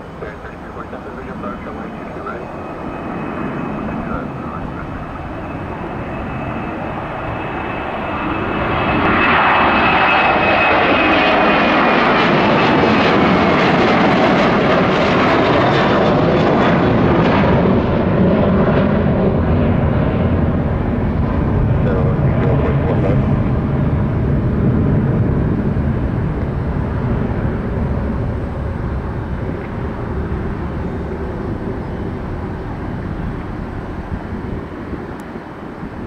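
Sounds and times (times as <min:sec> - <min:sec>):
jet engines at takeoff: 0:00.0 - 0:36.0.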